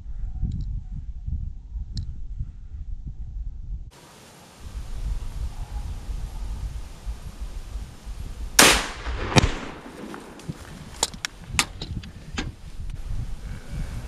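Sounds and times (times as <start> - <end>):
rifle shot: 8.6 - 10.6
sharp crack: 8.6 - 11.8.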